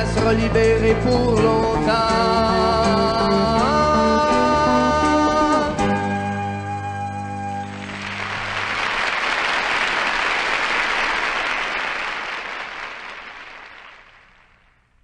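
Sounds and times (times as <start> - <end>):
audience applause: 7.6 - 14.7.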